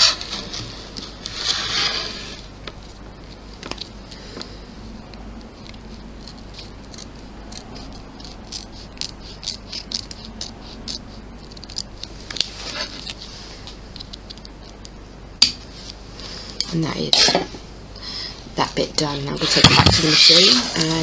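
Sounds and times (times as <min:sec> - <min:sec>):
scissors snipping: 0:05.4 - 0:13.2.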